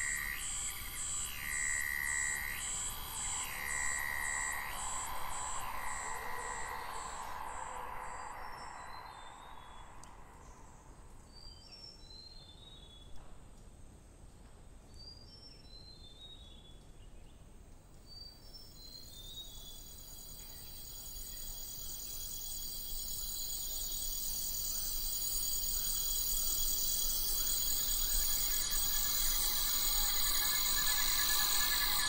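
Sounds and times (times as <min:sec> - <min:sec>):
high pulsing insect chorus: 0:00.0 - 0:12.4, 0:18.5 - 0:32.0.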